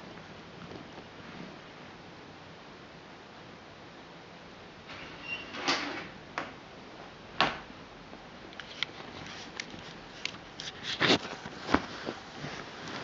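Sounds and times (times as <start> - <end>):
fabric rustling and handling clicks: 8.6 - 13.0.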